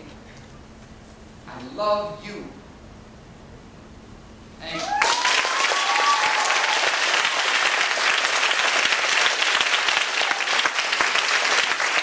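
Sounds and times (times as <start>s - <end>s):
audience clapping: 4.7s - 12.0s.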